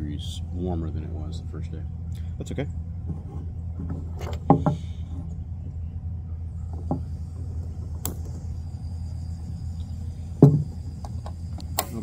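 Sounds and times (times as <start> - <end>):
gas hissing: 6.7 - 12.0
igniter click: 11.0 - 12.0.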